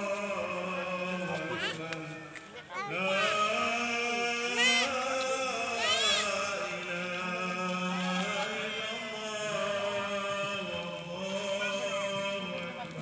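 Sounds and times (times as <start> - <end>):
voices chanting a prayer: 0.0 - 13.0.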